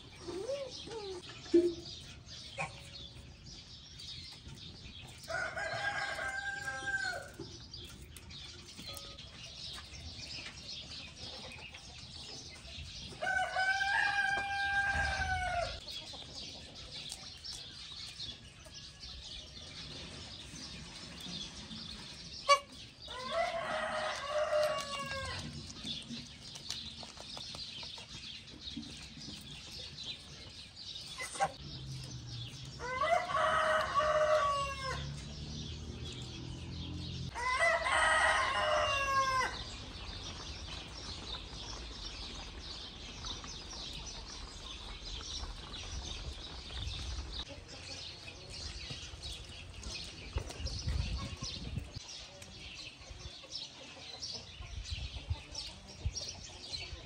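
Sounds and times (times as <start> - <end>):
rooster crowing: 5.3 - 7.4, 13.2 - 15.8, 23.2 - 25.4, 32.8 - 35.2, 37.3 - 39.7.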